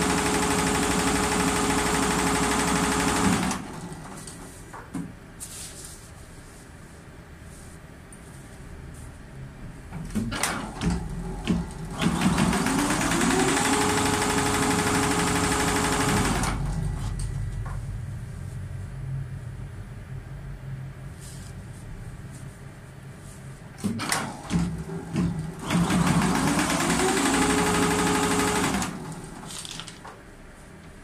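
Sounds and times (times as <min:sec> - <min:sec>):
embroidery machine running: 0:00.0 - 0:04.4, 0:10.4 - 0:18.1, 0:23.8 - 0:29.5.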